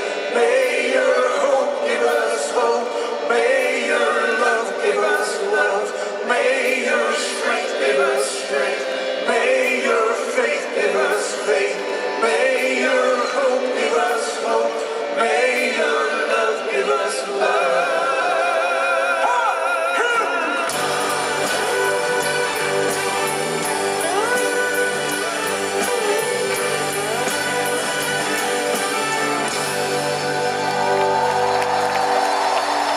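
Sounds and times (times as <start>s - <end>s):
several voices singing a refrain: 0.0s - 32.9s
cymbals keeping a steady beat: 20.7s - 30.6s
live rock band playing: 20.7s - 32.8s.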